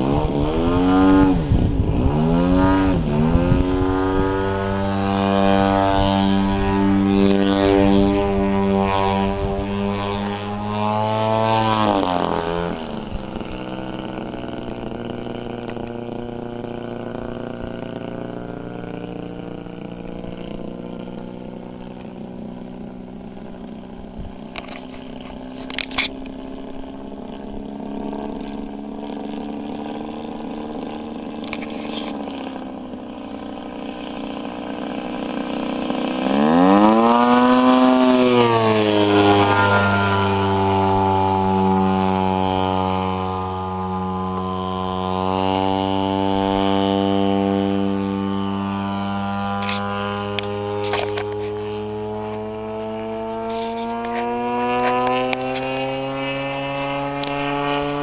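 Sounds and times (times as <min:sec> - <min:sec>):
model plane engine and propeller: 0:00.0 - 0:58.0.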